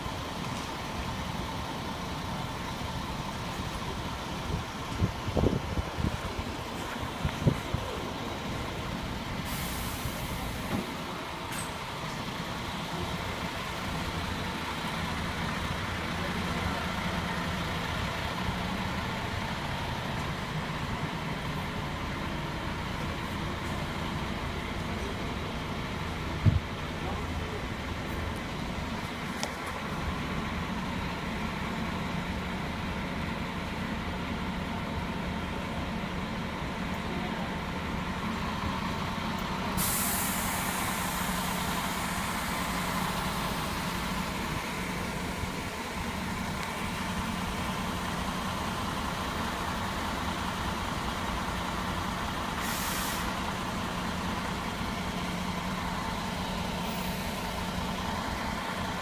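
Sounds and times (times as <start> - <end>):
diesel engine idling: 0.0 - 59.0
hiss of released air: 9.4 - 10.7, 39.7 - 43.4, 52.6 - 53.4.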